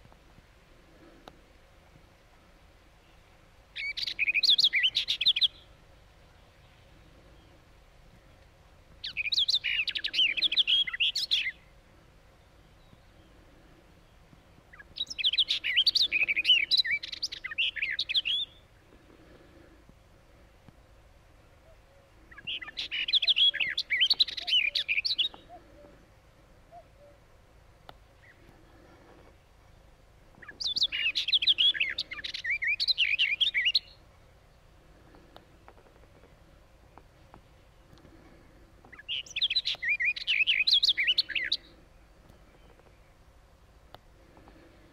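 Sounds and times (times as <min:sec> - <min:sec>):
warbler singing: 0:03.0 - 0:08.4, 0:09.0 - 0:19.1, 0:21.4 - 0:26.0, 0:28.2 - 0:43.4.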